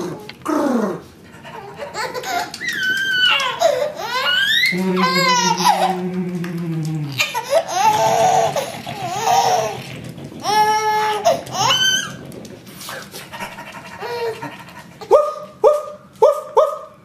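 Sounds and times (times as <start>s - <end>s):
baby laughing: 1.3s - 6.2s, 7.1s - 9.8s, 13.4s - 15.8s.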